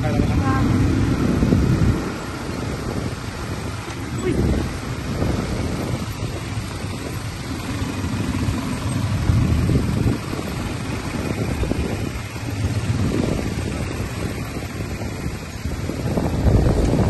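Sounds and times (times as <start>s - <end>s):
quad bike engines rumbling: 0.0s - 17.0s.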